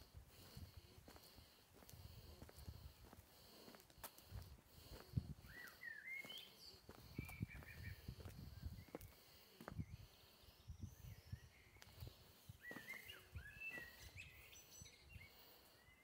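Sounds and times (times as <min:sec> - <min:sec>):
faint footsteps: 0:00.0 - 0:09.8
bird chirps: 0:05.5 - 0:09.1, 0:09.8 - 0:16.0.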